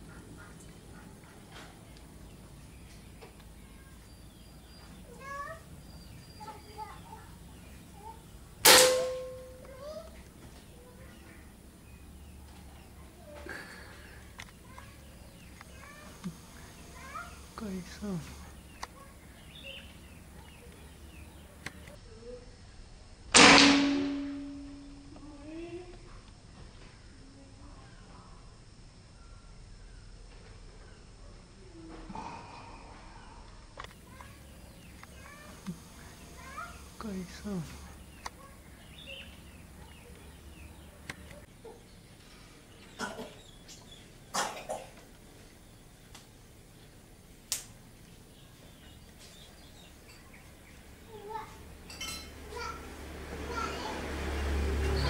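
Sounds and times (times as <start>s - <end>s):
air rifle shot: 8.6s - 9.6s, 23.3s - 24.6s.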